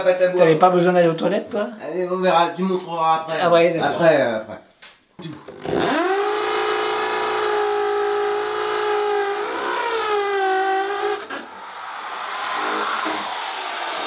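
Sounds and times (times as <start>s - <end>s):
electric drill boring into wood: 5.5s - 14.0s.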